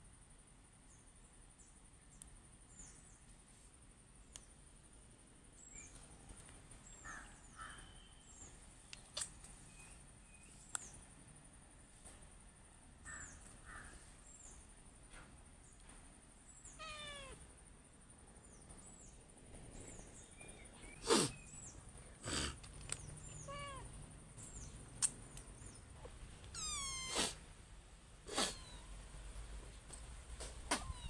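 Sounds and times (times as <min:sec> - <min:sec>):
kittens mewing: 0:16.7 - 0:17.5, 0:23.2 - 0:24.0, 0:26.5 - 0:27.5, 0:28.2 - 0:29.0.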